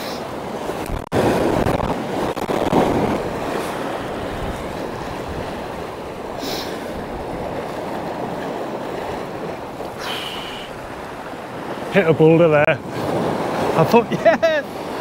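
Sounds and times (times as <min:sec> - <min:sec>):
wind buffeting microphone: 0:00.0 - 0:10.0
sea waves breaking on shore: 0:00.0 - 0:15.0.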